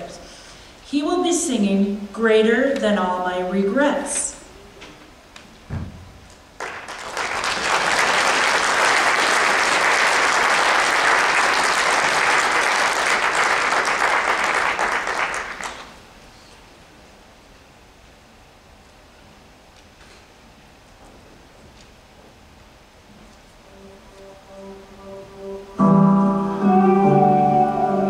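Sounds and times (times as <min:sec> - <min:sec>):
low thump: 0:05.7 - 0:06.2
audience applauding: 0:06.6 - 0:16.0.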